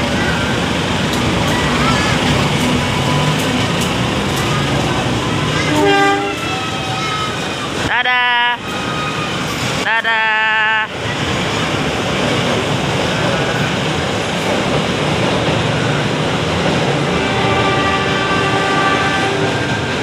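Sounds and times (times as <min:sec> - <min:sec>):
train engine and wheels rumbling: 0:00.0 - 0:20.0
train horn blast: 0:05.6 - 0:06.7, 0:17.0 - 0:19.9.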